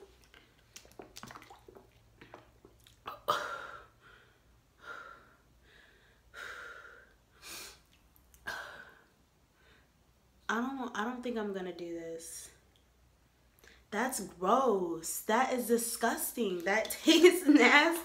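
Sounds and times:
drinking from plastic bottle: 0:00.0 - 0:03.2.

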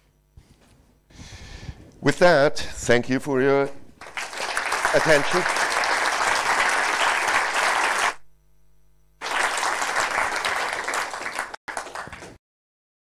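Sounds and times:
audience applauding: 0:04.0 - 0:08.3, 0:09.2 - 0:12.4.

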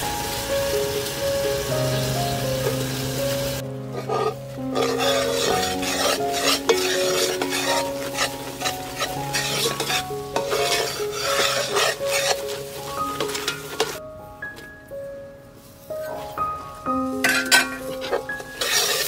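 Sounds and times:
syrup bubbling and sizzling: 0:00.0 - 0:14.0, 0:17.2 - 0:19.0
background music: 0:00.0 - 0:19.0
metal spoon scraping a pot: 0:03.9 - 0:14.0, 0:17.2 - 0:19.0.

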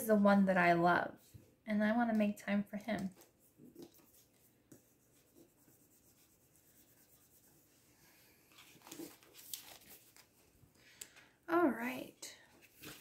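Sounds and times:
sticker smoothed onto paper: 0:03.0 - 0:07.8
paper rustling and crackling: 0:08.5 - 0:10.6, 0:12.5 - 0:13.0.

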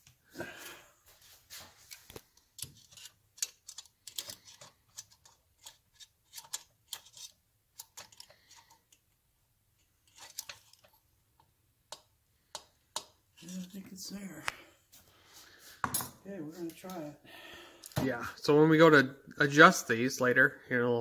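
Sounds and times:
metallic clicks of tools and parts: 0:01.9 - 0:09.0, 0:10.1 - 0:13.2.

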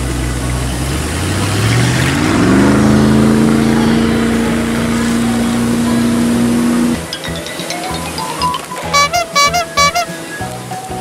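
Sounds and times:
engine-like hum: 0:00.0 - 0:07.2.

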